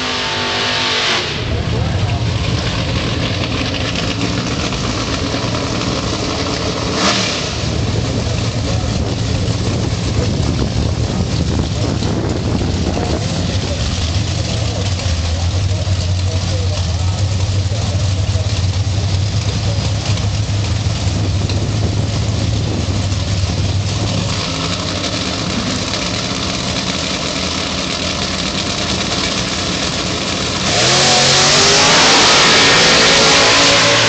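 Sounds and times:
race car accelerating away: 0.0 - 34.0
race car engines idling: 1.2 - 34.0.

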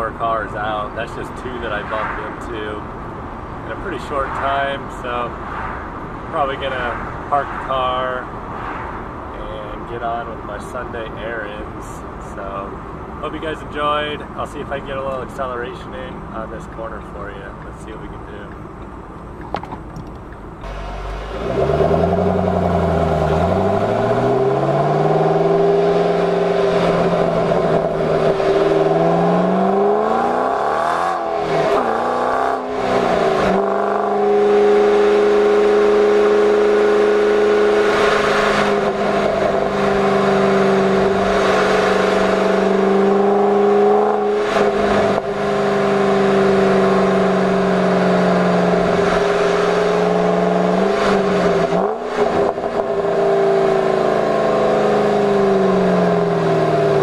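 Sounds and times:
car engine accelerating: 18.2 - 57.0.

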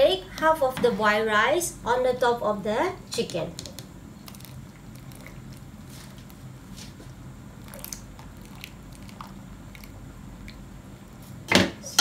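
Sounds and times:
small wet clicks and crackles: 3.6 - 6.4, 7.6 - 10.6.

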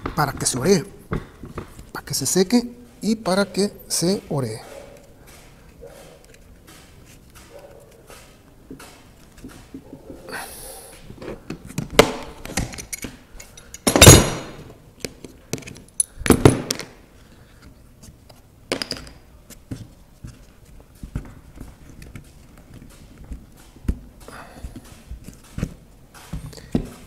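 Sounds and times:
clamps knocking and clattering: 11.2 - 17.0.

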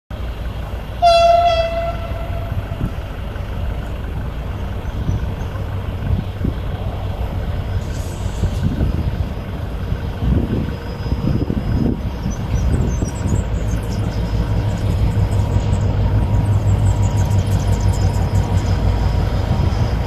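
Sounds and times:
low rumble: 0.2 - 20.0
locomotive horn blast: 1.0 - 2.9.

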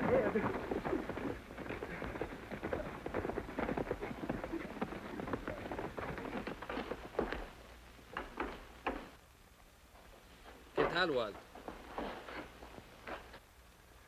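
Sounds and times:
horse hoofbeats clattering: 0.0 - 9.2.

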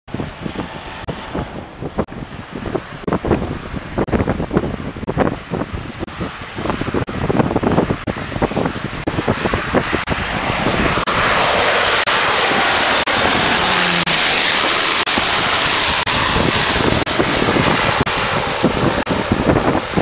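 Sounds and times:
propeller plane passing overhead: 0.1 - 20.0.

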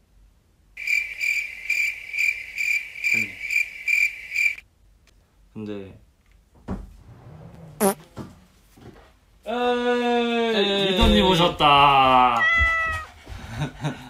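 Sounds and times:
cricket chirping: 0.8 - 4.6.

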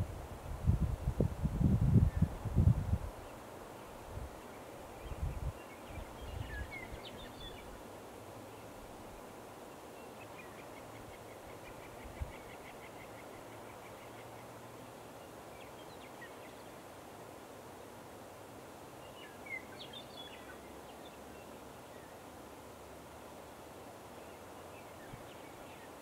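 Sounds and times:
distant small birds calling: 3.2 - 17.4.

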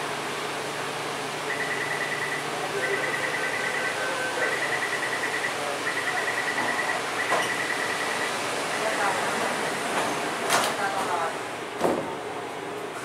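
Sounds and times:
train and station hum: 0.0 - 13.0
rapid high electronic beeps: 1.5 - 8.3
slower lower beep: 1.5 - 9.1.

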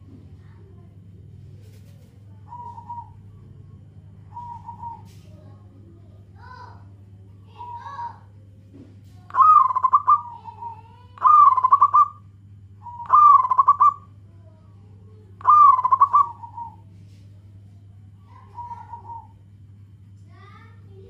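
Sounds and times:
dove cooing: 1.7 - 5.2, 7.5 - 8.2, 9.3 - 12.2, 12.8 - 14.1, 15.4 - 16.9, 18.3 - 19.4.

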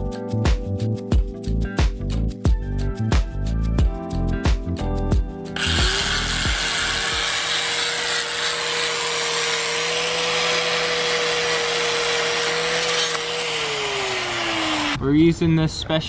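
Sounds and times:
angle grinder whining: 5.6 - 15.0.

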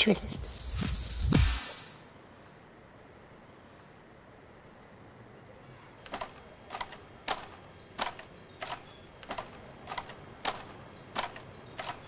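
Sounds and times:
steady high whine: 0.0 - 3.3
camera shutter clicks: 6.0 - 12.0.

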